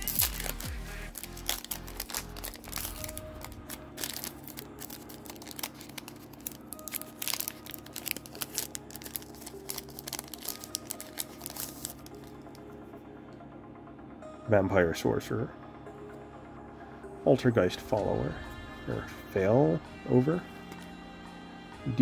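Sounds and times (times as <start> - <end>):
foil pack crinkling and tearing: 0.0 - 12.6.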